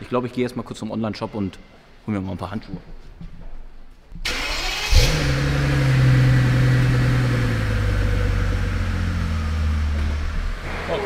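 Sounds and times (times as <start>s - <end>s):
car engine starting and idling: 4.2s - 11.0s
engine starter cranking: 4.3s - 7.0s.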